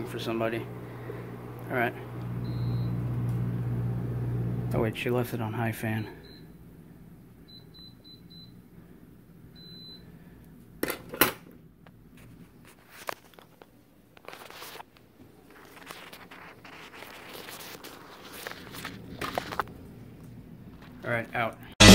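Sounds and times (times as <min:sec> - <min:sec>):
air conditioner beeping: 0:00.0 - 0:06.7, 0:07.4 - 0:08.8, 0:09.5 - 0:10.4.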